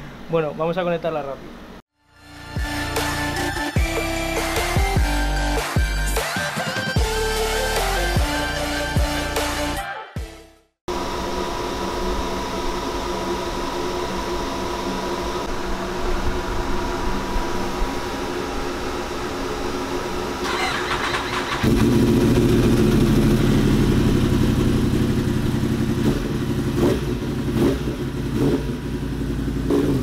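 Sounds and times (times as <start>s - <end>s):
motorcycle engine on dyno: 10.9s - 30.0s.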